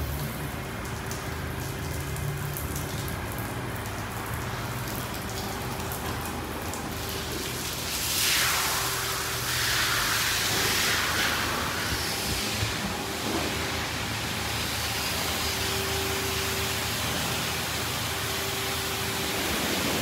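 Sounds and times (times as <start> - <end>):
car wash water spray: 0.0 - 20.0
loud hiss of spray: 8.0 - 12.8.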